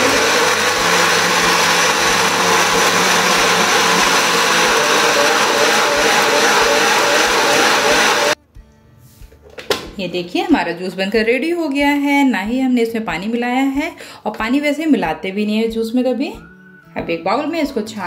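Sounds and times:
blender running: 0:00.0 - 0:08.4.

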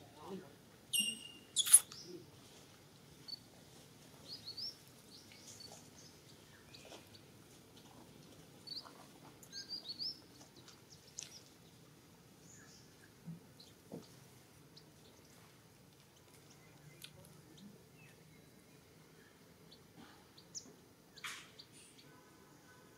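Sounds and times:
faint bird chirps: 0:00.9 - 0:02.2, 0:16.4 - 0:22.9.

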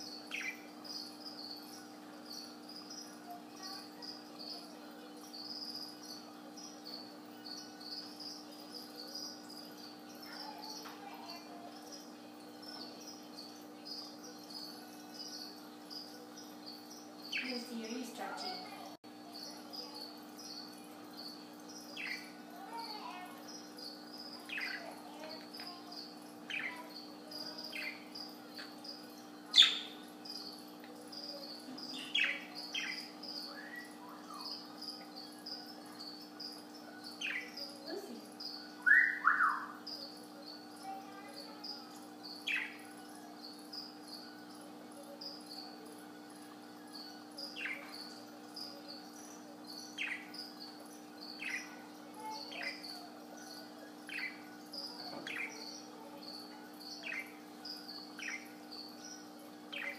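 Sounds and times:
electrical hum: 0:00.0 - 0:59.9
faint high repeating chirp: 0:00.0 - 0:59.9
budgerigar chirping: 0:00.3 - 0:00.7, 0:24.4 - 0:24.9, 0:29.5 - 0:30.1, 0:32.0 - 0:34.6, 0:38.4 - 0:40.1, 0:49.9 - 0:50.6.

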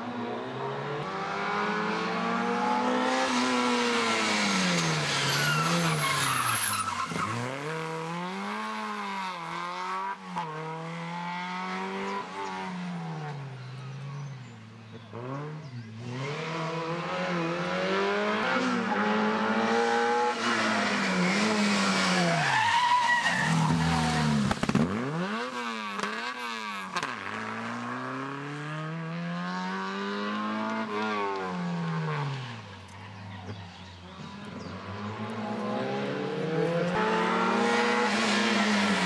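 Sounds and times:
car engine revving: 0:00.4 - 0:14.3, 0:14.9 - 0:39.0
tyre squeal: 0:04.8 - 0:07.8, 0:21.3 - 0:24.2.

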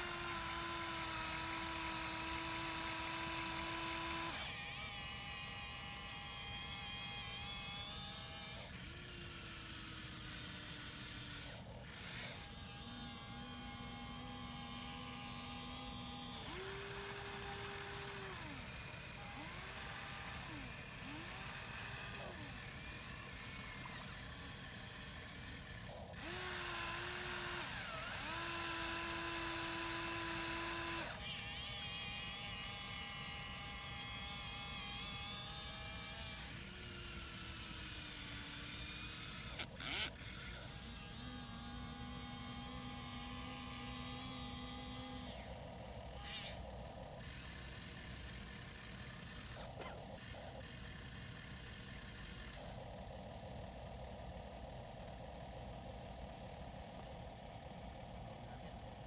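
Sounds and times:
small electric motors whining: 0:00.0 - 0:59.0.

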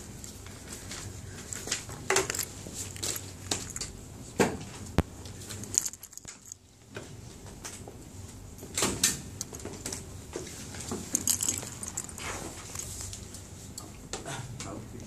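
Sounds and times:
handling knocks and clicks at desk: 0:01.4 - 0:06.6, 0:08.8 - 0:13.2.

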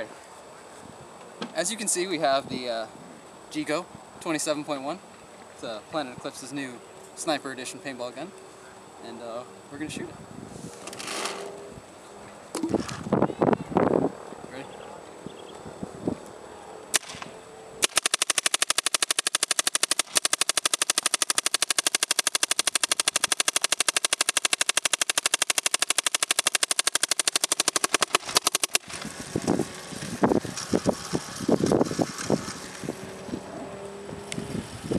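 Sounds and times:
paintball gun rapid firing: 0:16.9 - 0:29.4.

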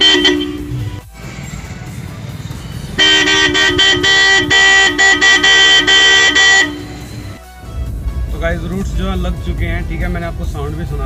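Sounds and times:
electric car horns honking: 0:00.0 - 0:01.0, 0:02.9 - 0:07.4.

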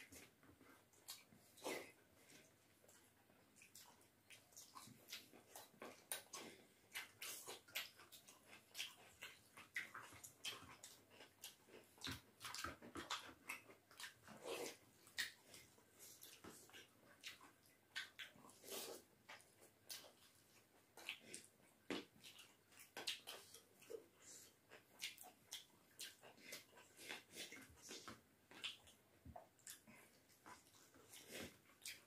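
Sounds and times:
wet mouth smacks and chewing: 0:00.1 - 0:32.0.

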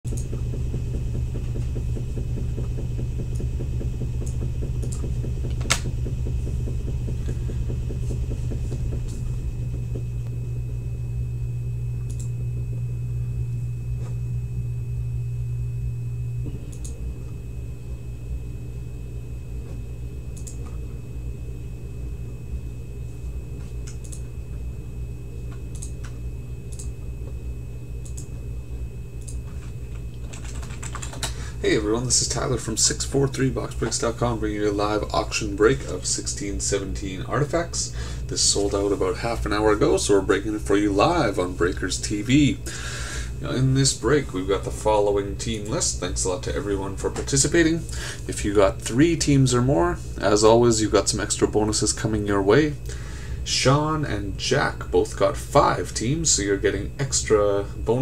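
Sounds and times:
low electrical hum: 0:00.0 - 0:58.0
sharp clicks: 0:00.1 - 0:00.4, 0:04.2 - 0:05.9, 0:12.0 - 0:12.4, 0:20.4 - 0:20.6, 0:25.7 - 0:26.9, 0:28.0 - 0:28.3.

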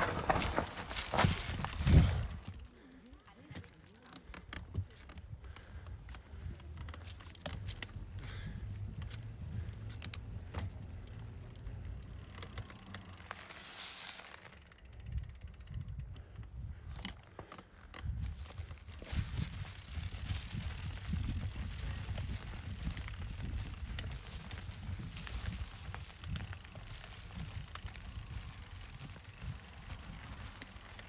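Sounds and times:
wind rumble on microphone: 0:00.0 - 0:02.7, 0:04.6 - 0:12.0, 0:18.0 - 0:31.0
bike chain and frame rattling: 0:00.0 - 0:31.0
freewheel hub ticking: 0:03.9 - 0:13.6, 0:14.3 - 0:31.0.

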